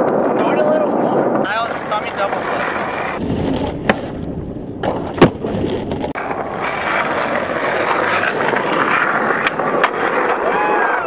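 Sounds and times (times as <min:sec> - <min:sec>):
skateboard wheels rolling on asphalt: 0:00.0 - 0:11.0
skateboard clack on street: 0:04.8 - 0:10.8.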